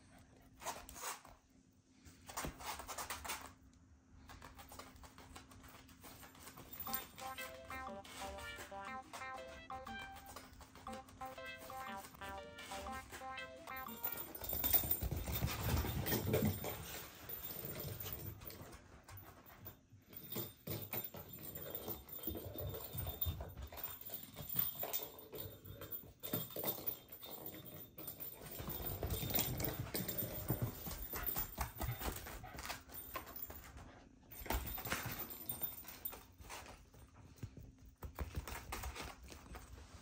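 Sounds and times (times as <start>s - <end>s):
paws scuffling on floor: 4.2s - 19.7s, 28.5s - 40.0s.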